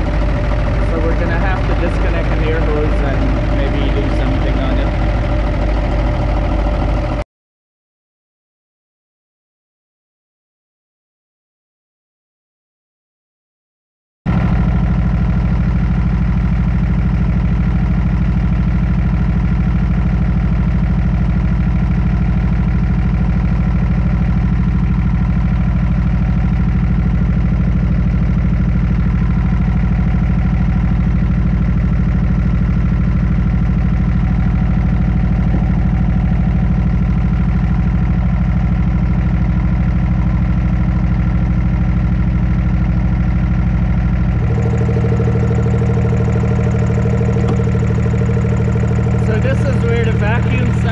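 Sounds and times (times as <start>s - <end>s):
air compressor running: 0.0s - 7.2s, 14.3s - 50.9s
diesel truck engine idling: 0.0s - 7.2s, 14.3s - 50.9s.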